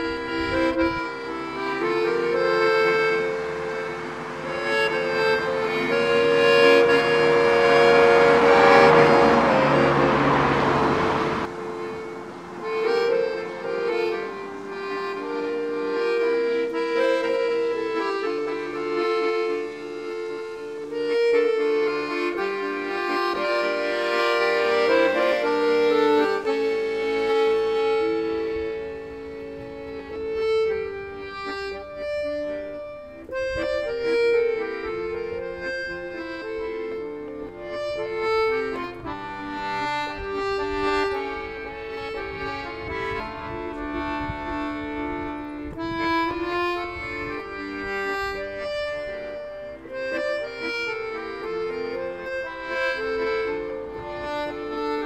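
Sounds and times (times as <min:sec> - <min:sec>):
accordion music: 0:00.0 - 0:55.0.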